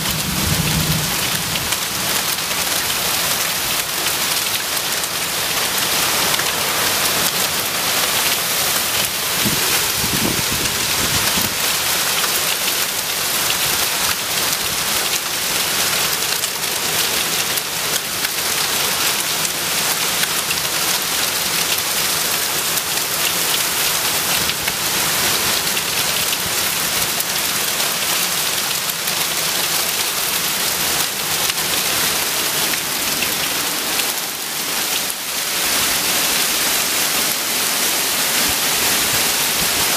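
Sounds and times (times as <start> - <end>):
low thunder rumble: 0.0 - 1.8
heavy rain pouring: 0.0 - 39.9.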